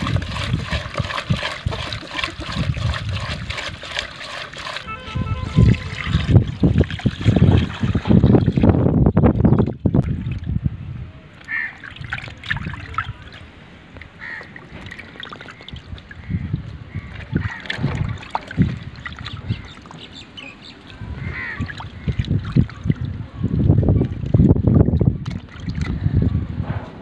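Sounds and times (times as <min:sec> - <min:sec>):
water sloshing in a pot: 0:00.0 - 0:10.7, 0:11.3 - 0:26.2
birds calling: 0:19.0 - 0:23.5.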